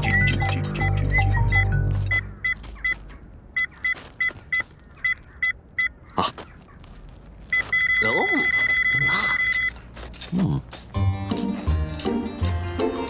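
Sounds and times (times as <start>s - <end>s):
background music: 0.0s - 2.4s, 10.4s - 13.0s
high electronic beeps: 0.0s - 3.0s, 7.5s - 9.8s
long steady beep: 7.5s - 9.8s.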